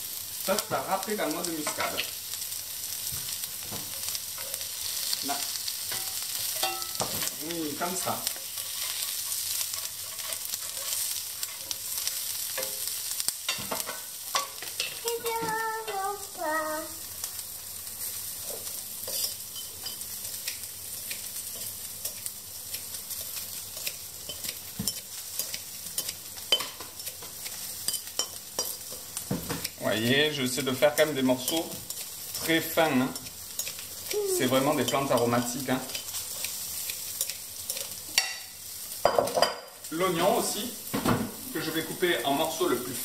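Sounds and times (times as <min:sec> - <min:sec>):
food sizzling in a pan: 0:00.0 - 0:43.0
child's high voice: 0:15.0 - 0:17.0, 0:34.1 - 0:34.7.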